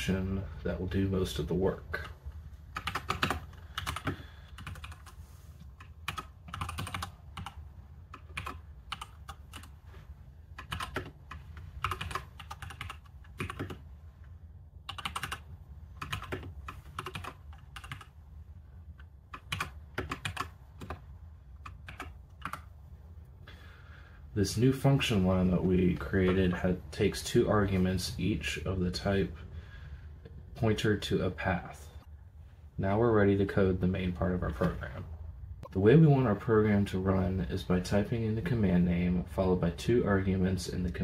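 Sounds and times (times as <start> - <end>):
computer keyboard typing: 2.7 - 5.2, 5.8 - 9.8, 10.6 - 13.8, 14.8 - 15.4, 16.0 - 18.1, 19.3 - 21.0, 21.6 - 22.7.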